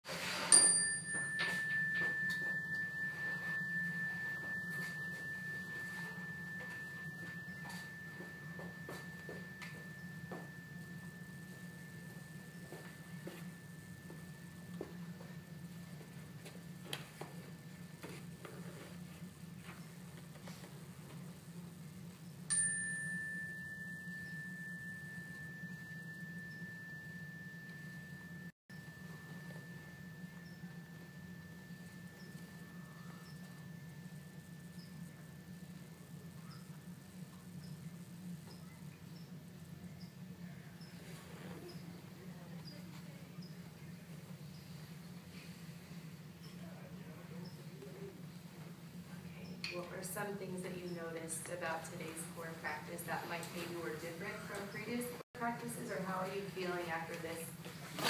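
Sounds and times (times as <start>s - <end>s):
chime ringing: 0.5s - 17.8s, 22.5s - 37.8s.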